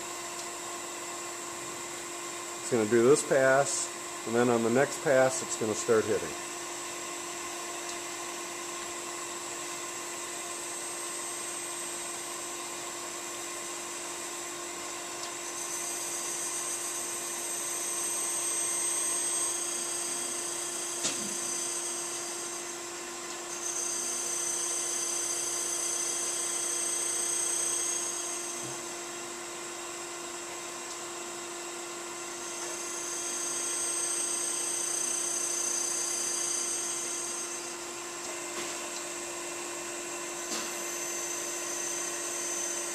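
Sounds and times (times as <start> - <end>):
grinding wheel hiss: 23.6 - 28.7, 32.5 - 37.7.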